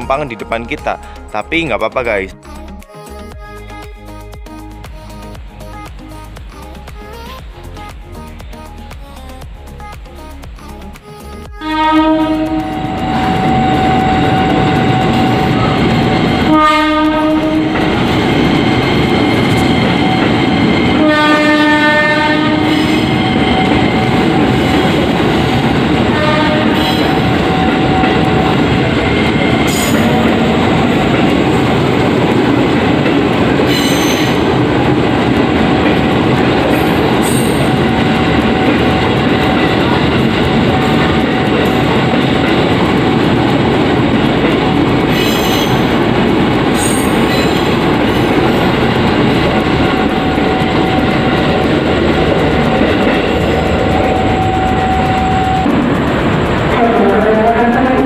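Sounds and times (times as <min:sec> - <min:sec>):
electric train rail noise: 0:00.0 - 0:58.0
train horn blasts: 0:11.6 - 0:18.1, 0:21.0 - 0:28.6.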